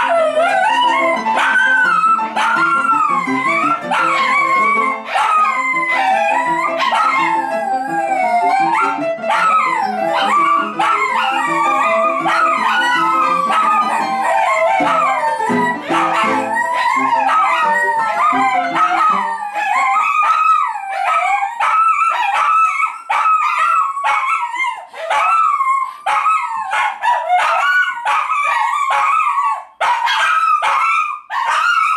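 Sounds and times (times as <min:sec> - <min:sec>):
piano music: 0:00.0 - 0:20.5
dog howling: 0:00.0 - 0:31.9.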